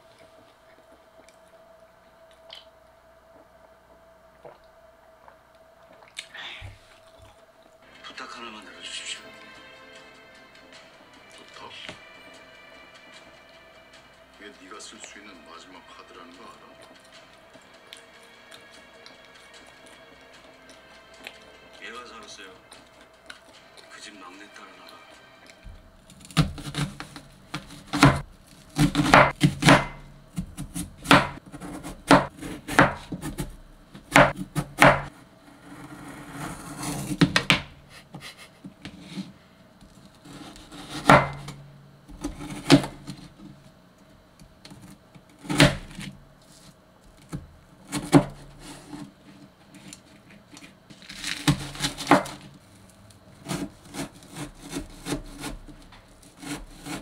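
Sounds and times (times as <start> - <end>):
knife slicing: 26.0 - 33.5, 36.0 - 37.6, 40.2 - 41.6, 49.8 - 52.5, 53.4 - 57.0.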